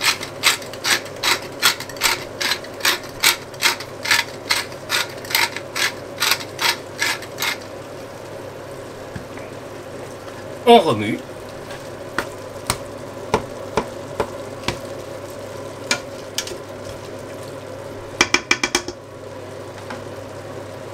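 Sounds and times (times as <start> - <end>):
pepper mill grinding: 0.0 - 7.7.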